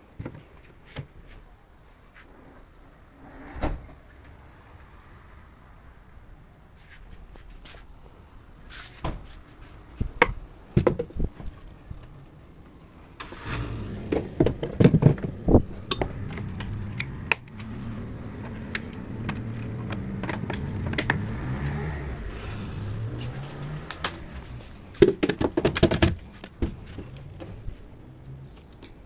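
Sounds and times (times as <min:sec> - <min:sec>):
telescope parts knocking and scraping: 0:14.1 - 0:21.3, 0:23.2 - 0:29.0.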